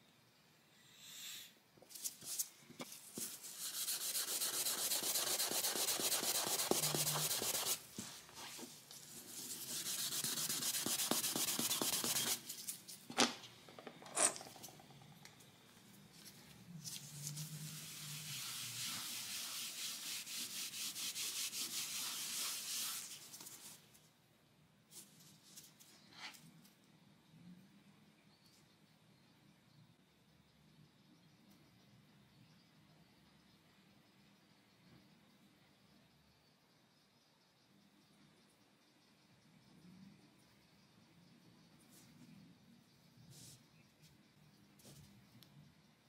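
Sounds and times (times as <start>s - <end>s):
hand scrubbing laminate floor: 3.2s - 12.6s, 16.9s - 23.7s.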